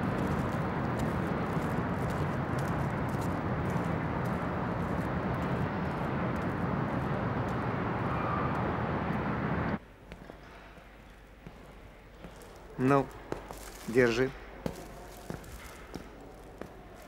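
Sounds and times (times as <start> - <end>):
city street traffic hum: 0.0 - 17.0.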